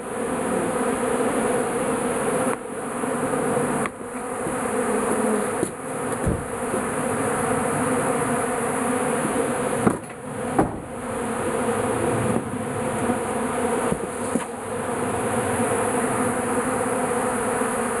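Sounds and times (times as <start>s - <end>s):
bees buzzing: 0.0s - 18.0s
sharp knocks: 5.6s - 6.8s, 9.8s - 10.9s.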